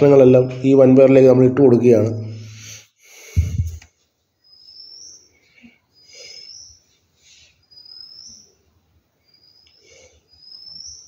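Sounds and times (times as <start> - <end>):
faint bird chirps: 2.5 - 11.0.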